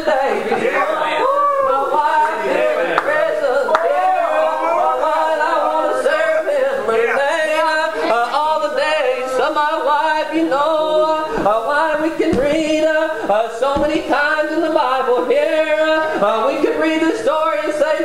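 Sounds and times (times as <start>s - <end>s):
man chanting in sung tones: 4.4s - 18.0s.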